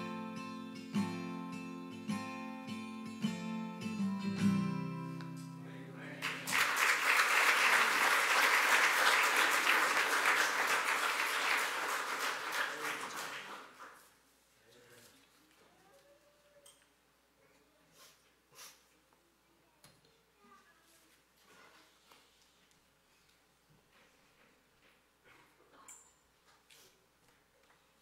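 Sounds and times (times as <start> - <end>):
acoustic guitar strumming: 0.0 - 6.5
crowd applauding: 6.2 - 14.0.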